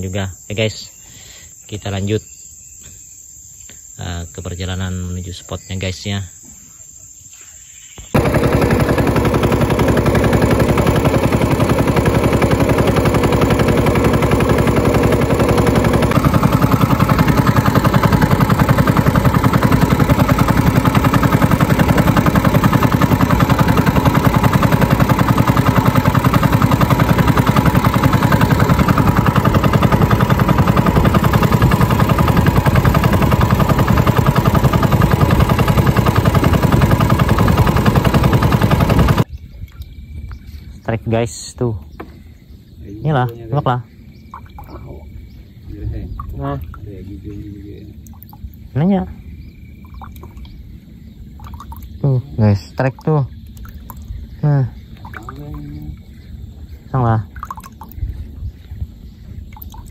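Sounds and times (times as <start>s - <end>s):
small boat engine running: 8.1s - 39.3s, 44.2s - 59.9s.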